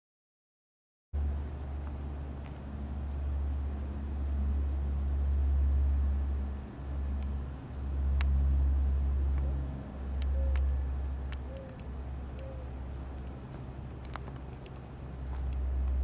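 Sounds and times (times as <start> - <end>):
light clicks: 6.5 - 8.4, 10.1 - 16.0
faint bird chirps: 6.7 - 8.3, 10.2 - 12.7.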